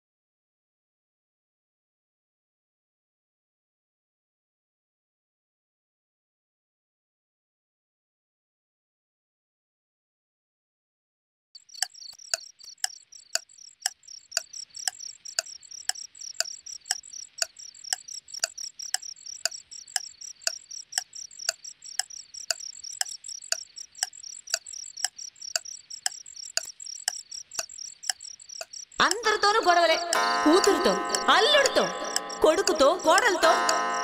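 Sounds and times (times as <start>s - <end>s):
crickets chirping: 11.6s - 34.0s
pendulum wall clock ticking: 11.6s - 34.0s.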